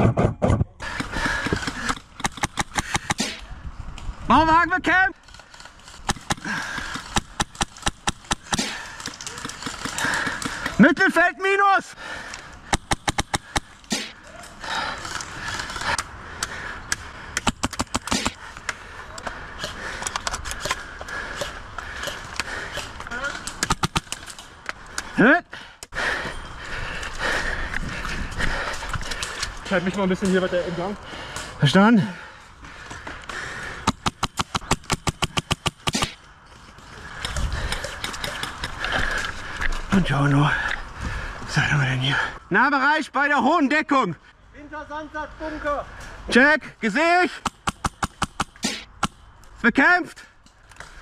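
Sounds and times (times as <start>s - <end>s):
airsoft gun shots: 33.9s - 36.2s.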